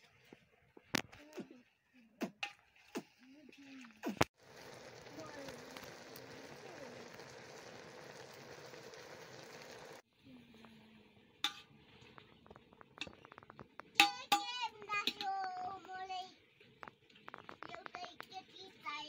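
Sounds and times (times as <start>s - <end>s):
pot boiling with hissing bubble: 3.9s - 19.0s
metal spoon clinking in pot: 11.4s - 12.1s, 14.0s - 15.2s.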